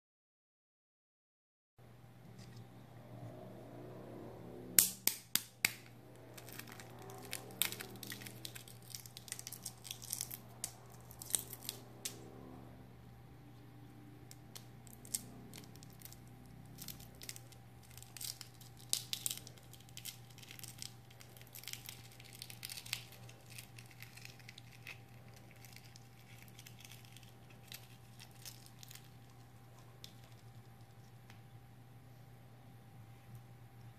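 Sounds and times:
faint steady hum: 1.8 - 33.9
eggshell crackling as it is peeled: 5.3 - 12.2, 14.3 - 31.6.

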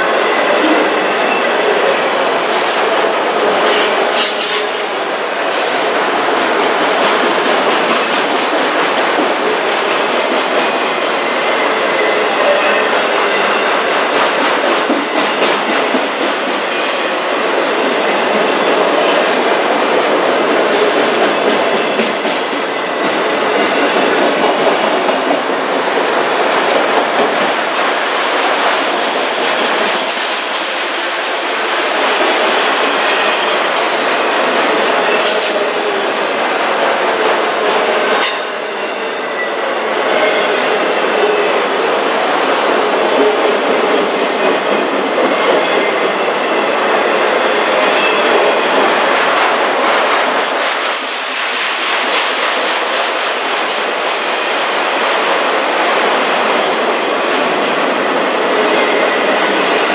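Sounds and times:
train wheels on rail: 0.0 - 59.9
sharp metal clanks: 38.2 - 38.7.

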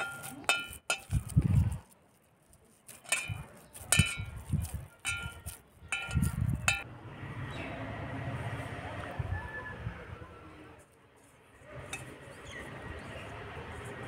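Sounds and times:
steel bowl clinking: 0.0 - 1.7, 2.9 - 6.8, 11.8 - 12.3.

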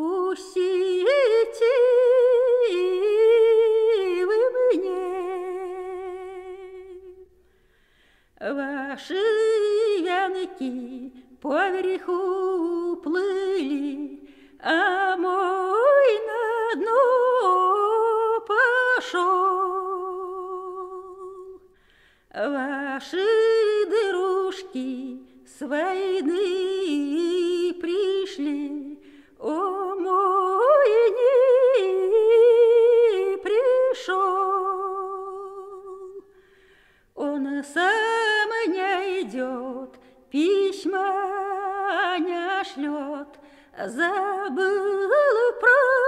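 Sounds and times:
woman singing unaccompanied: 0.0 - 7.3, 8.4 - 21.7, 22.3 - 36.3, 37.2 - 46.0.

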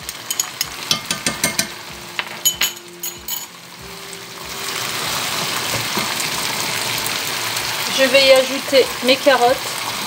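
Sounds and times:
food sizzling in a pot: 0.0 - 10.0
spoon knocking against pot: 0.2 - 3.5.

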